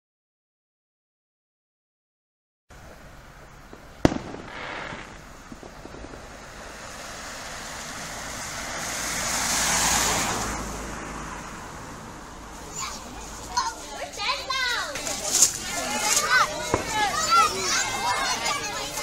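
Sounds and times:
car tyres hissing on wet road: 2.9s - 13.8s
firework bang: 3.6s - 10.8s, 16.6s - 18.2s.

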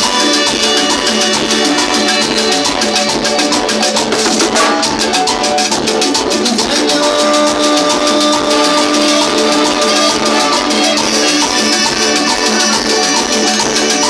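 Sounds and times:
latin dance band playing: 0.0s - 14.0s
metal shaker rhythm: 3.7s - 6.7s.

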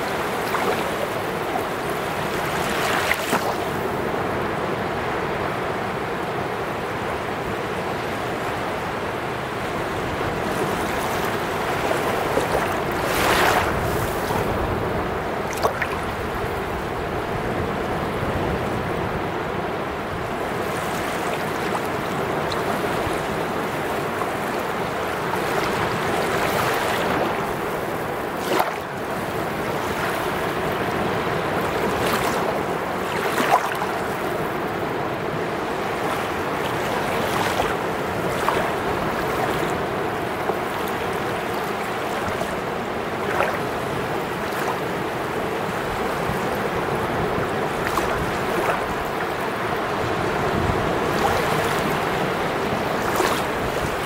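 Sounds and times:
waves breaking on sand: 0.0s - 54.0s.

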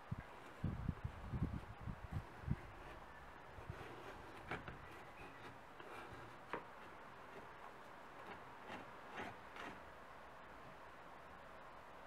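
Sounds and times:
brush scratching metal: 1.5s - 10.2s.

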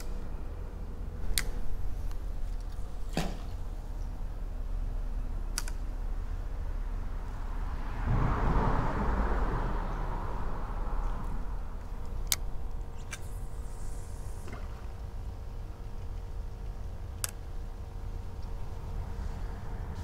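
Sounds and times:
low steady rumble: 0.0s - 20.0s
vehicle driving over bridge: 0.0s - 20.0s
sharp clicks: 5.5s - 5.9s, 16.0s - 17.5s.

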